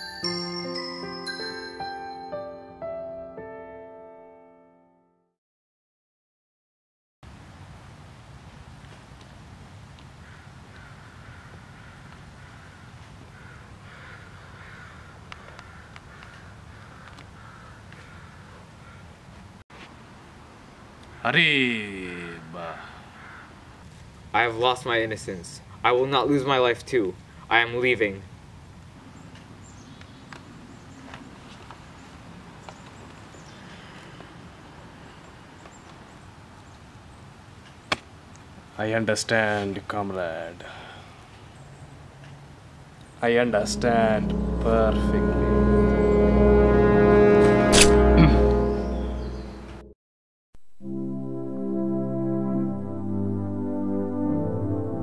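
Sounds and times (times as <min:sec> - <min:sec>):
bird calling: 0:22.8 - 0:23.6.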